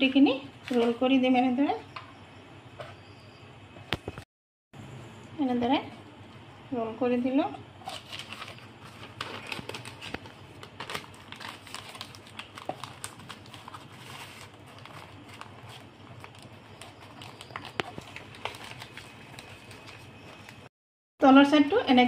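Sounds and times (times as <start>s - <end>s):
paper rustling and crinkling: 7.8s - 20.7s.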